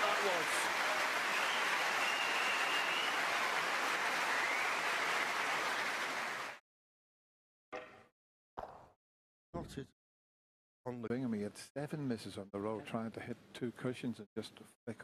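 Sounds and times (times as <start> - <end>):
crowd clapping: 0.0 - 6.6.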